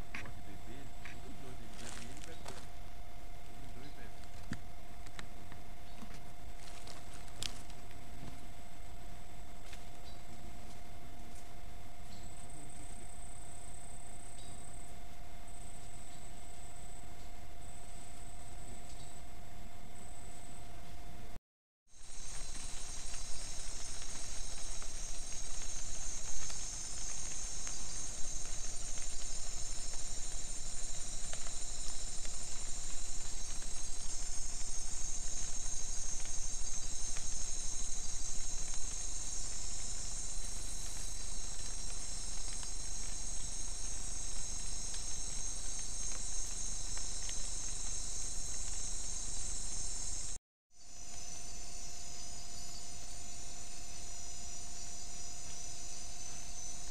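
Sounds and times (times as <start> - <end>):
crickets and insects trilling: 0.0 - 19.1, 21.9 - 56.9.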